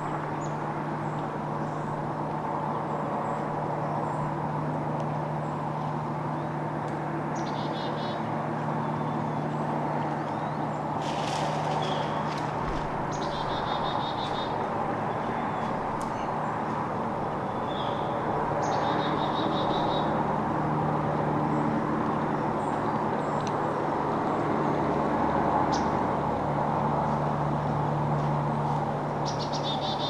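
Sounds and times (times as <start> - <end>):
distant road traffic hum: 0.0 - 30.0
bird chirping: 7.4 - 8.2, 13.1 - 16.5, 17.4 - 20.1, 29.2 - 30.0.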